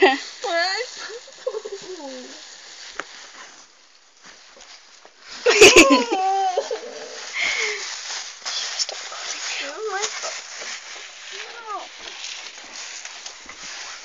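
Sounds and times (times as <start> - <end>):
person squealing: 5.8 - 7.3.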